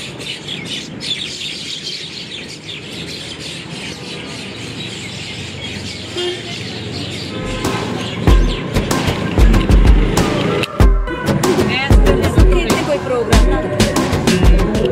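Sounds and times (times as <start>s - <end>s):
flock of birds chirping: 0.0s - 10.8s.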